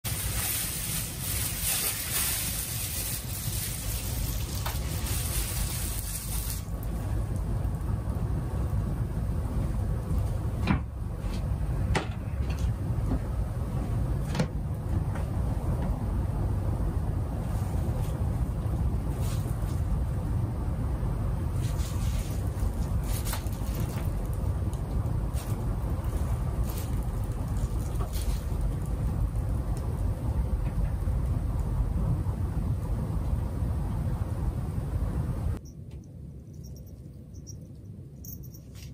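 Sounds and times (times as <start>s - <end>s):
bubble wrap rustling and crackling: 0.0s - 7.8s, 17.5s - 20.0s, 21.5s - 30.1s
low rumble: 0.0s - 38.6s.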